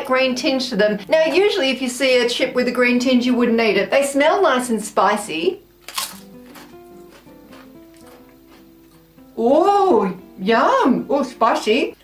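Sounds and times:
soft background music: 0.0s - 12.0s
crisp crunch being bitten: 5.8s - 8.7s.

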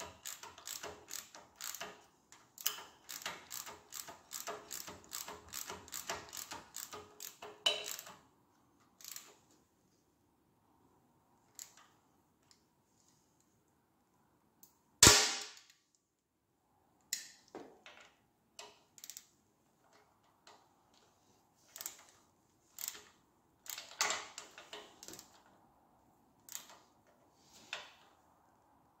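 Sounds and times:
hand tools clicking on metal parts: 0.0s - 8.2s.

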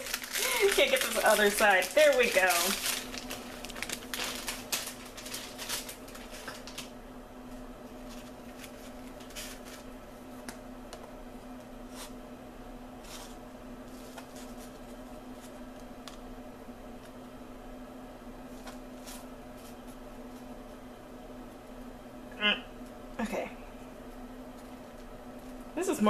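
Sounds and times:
marshmallows rustling and squishing: 0.0s - 12.2s, 13.0s - 17.3s, 23.8s - 26.0s
steady low hum: 0.0s - 26.0s.

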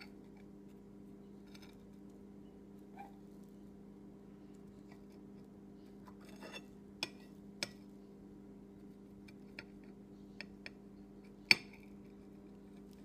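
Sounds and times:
steady low hum: 0.0s - 13.0s
metal utensil scraping a pan: 6.2s - 6.7s.

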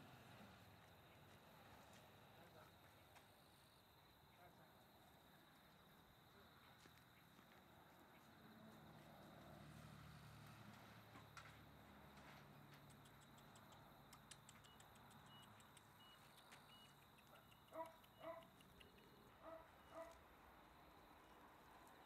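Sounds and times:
light high-pitched ticking: 12.8s - 20.2s.

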